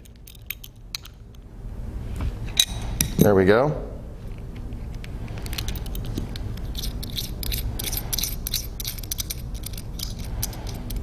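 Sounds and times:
ratcheting wrench clicking: 5.4s - 11.0s.

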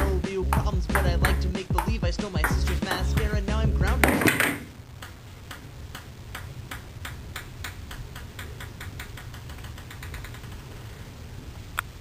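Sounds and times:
song: 0.0s - 4.4s
low steady hum: 0.0s - 12.0s
rapid light ticks: 5.0s - 10.8s.

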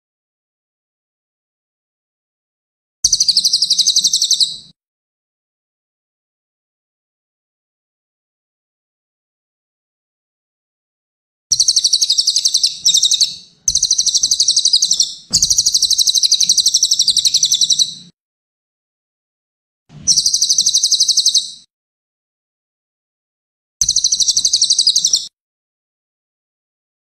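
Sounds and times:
bird singing pulsed trills: 3.1s - 4.7s, 11.5s - 18.1s, 20.1s - 21.7s, 23.8s - 25.3s.

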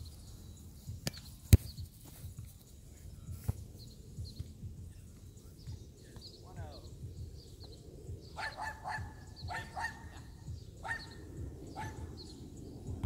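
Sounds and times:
dog barking: 8.4s - 10.2s, 10.8s - 11.1s, 11.8s - 12.0s.

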